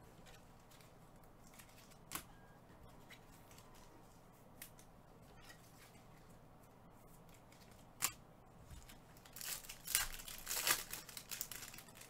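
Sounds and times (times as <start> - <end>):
foil wrapper crinkling and tearing: 9.2 - 12.0.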